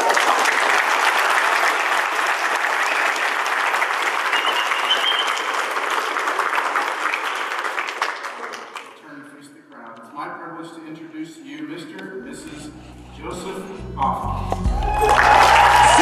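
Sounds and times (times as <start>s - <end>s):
crowd applauding: 0.0s - 9.0s, 14.6s - 16.0s.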